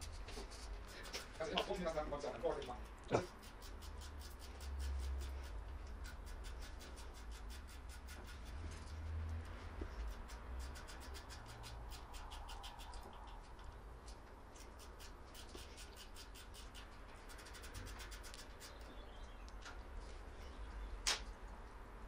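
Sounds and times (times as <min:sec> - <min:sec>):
fingers packing grease into bearing: 0:02.6 - 0:09.4, 0:10.0 - 0:13.8, 0:14.6 - 0:18.9.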